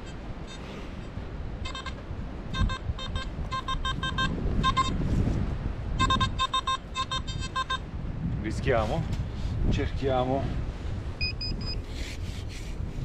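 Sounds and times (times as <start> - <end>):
metal detector beeping: 0.0 - 0.7, 1.6 - 5.0, 6.0 - 7.9, 11.2 - 11.8
wind rumble on microphone: 0.0 - 13.0.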